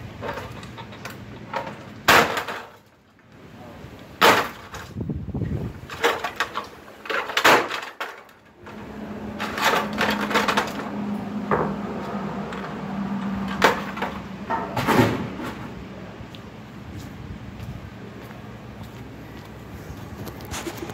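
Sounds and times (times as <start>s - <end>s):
hard plastic cracking and clattering: 0.2s - 3.2s, 5.9s - 8.8s, 9.4s - 10.9s.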